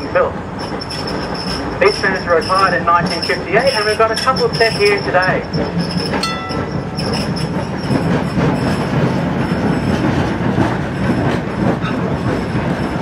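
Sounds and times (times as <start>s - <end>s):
tram wheels rumbling on rails: 0.0s - 13.0s
high wheel squeal: 0.5s - 8.8s.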